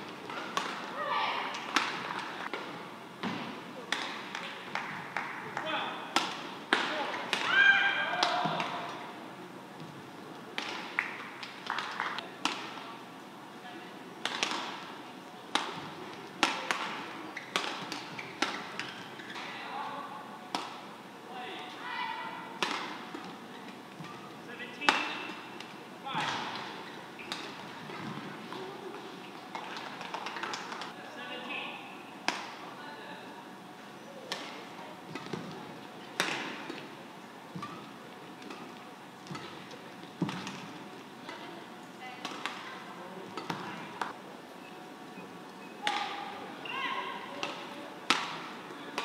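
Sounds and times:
rackets striking shuttlecock: 0:00.3 - 0:00.9, 0:15.5 - 0:19.5, 0:22.6 - 0:23.4, 0:47.4 - 0:49.0.

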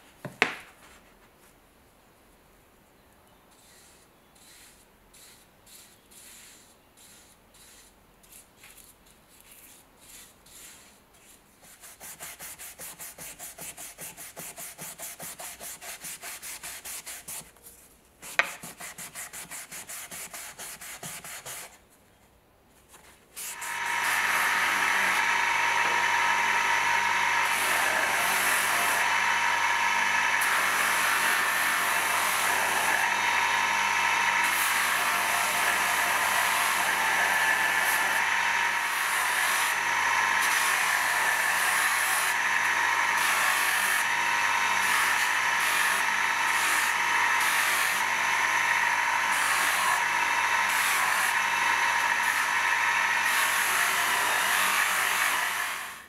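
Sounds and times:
paintbrush strokes on wood: 0:03.5 - 0:17.5
bench buffer motor running: 0:23.6 - 0:55.9.

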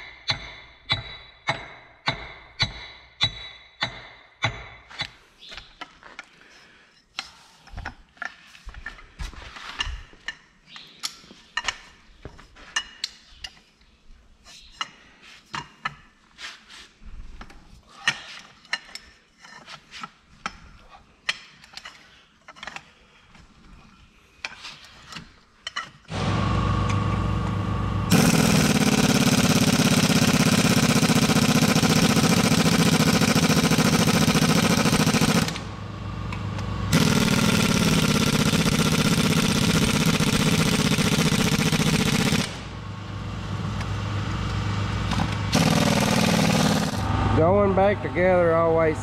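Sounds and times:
pneumatic impact wrench running: 0:26.1 - 0:42.9, 0:45.1 - 0:47.3.

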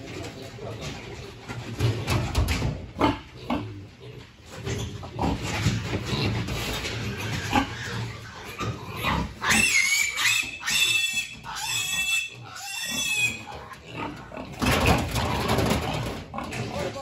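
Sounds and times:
piglets squealing: 0:07.1 - 0:14.5.

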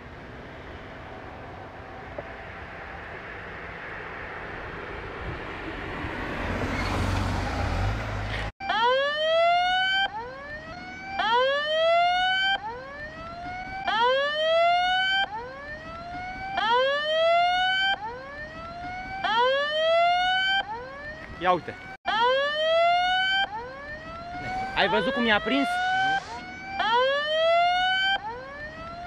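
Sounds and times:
vehicle rumbling past: 0:00.0 - 0:08.5
siren whooping: 0:08.6 - 0:29.0.

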